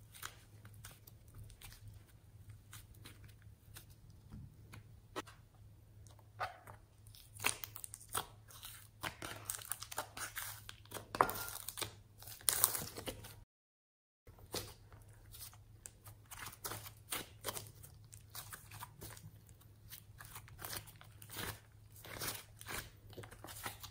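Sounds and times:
sticky slime crackling and popping: 0:07.0 - 0:13.0.

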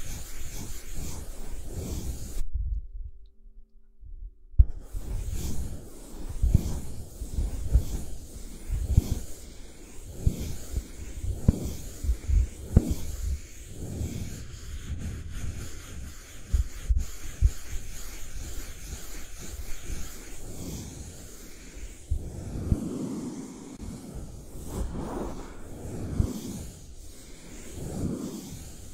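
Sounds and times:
brush rubbing over object: 0:00.0 - 0:02.4, 0:04.6 - 0:28.9
soft low thumps: 0:04.0 - 0:04.9.

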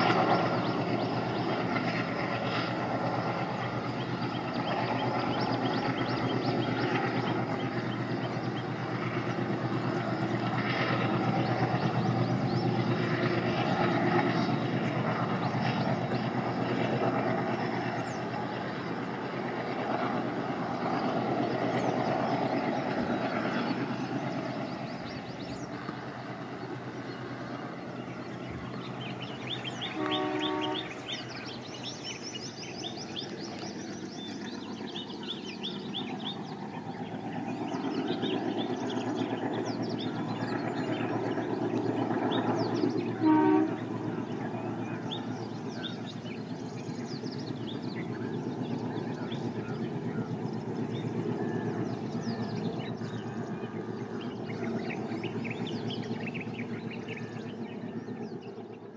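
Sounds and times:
diesel locomotive engine drone: 0:00.0 - 0:58.9
train coaches rumbling: 0:00.0 - 0:58.9
train horn blast: 0:29.8 - 0:31.3, 0:43.1 - 0:44.2.

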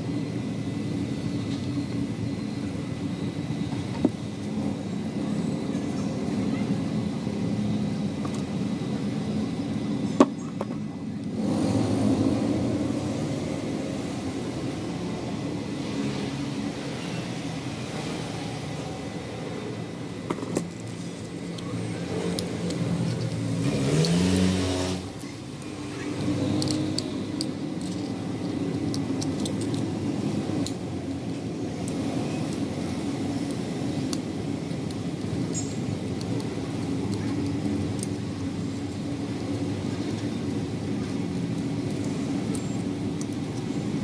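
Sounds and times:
vehicle engine noise: 0:00.0 - 0:44.0
engine revving up: 0:11.3 - 0:14.3, 0:23.4 - 0:27.3.

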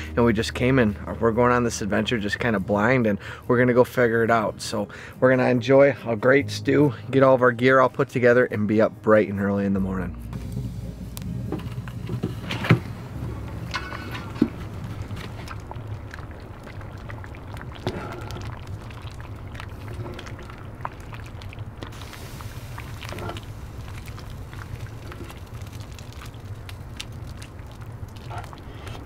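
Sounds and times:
steady low hum: 0:10.0 - 0:29.0
fire crackling: 0:10.3 - 0:29.0
stew simmering: 0:10.4 - 0:29.0
ladle stirring: 0:12.0 - 0:29.0.

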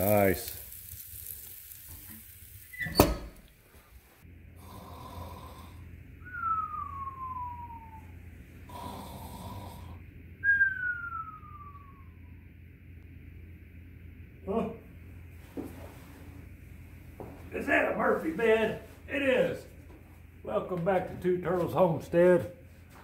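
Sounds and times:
mock snoring: 0:04.6 - 0:05.9, 0:08.7 - 0:10.0.

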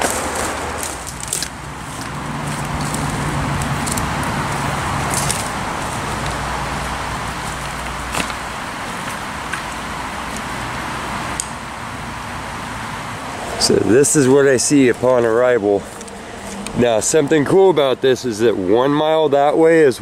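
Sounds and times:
footsteps on dry leaves: 0:00.0 - 0:11.2, 0:13.4 - 0:16.9
steady rushing background noise: 0:00.0 - 0:18.8.

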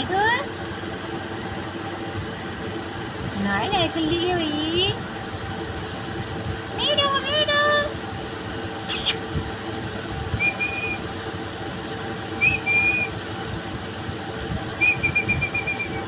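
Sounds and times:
background hiss and hum: 0:00.0 - 0:16.0
parrots chirping: 0:08.9 - 0:09.2, 0:10.4 - 0:11.0, 0:12.4 - 0:13.1, 0:14.8 - 0:16.0
sharp click: 0:08.9 - 0:09.2.

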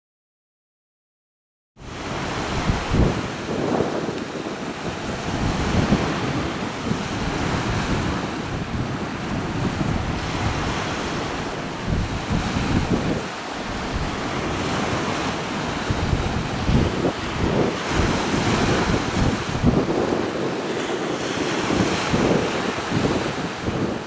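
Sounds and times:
wind buffeting microphone: 0:01.8 - 0:24.0
river water rushing: 0:02.0 - 0:24.0.

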